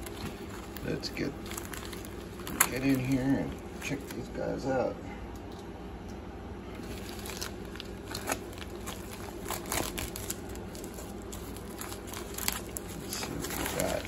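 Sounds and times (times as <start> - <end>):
bubble mailer crinkling and tearing: 0.0 - 4.2, 6.8 - 14.0.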